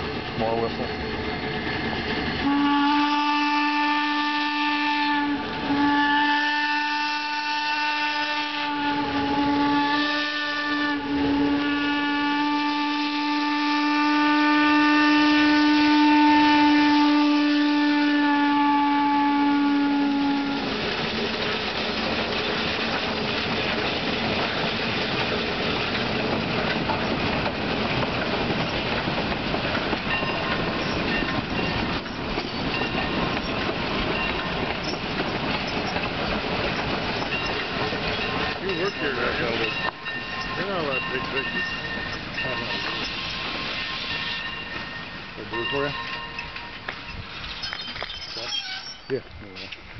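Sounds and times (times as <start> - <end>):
train running gear on rails: 0.0 - 3.2, 20.2 - 49.9
steam whistle toots and blast: 2.4 - 20.7.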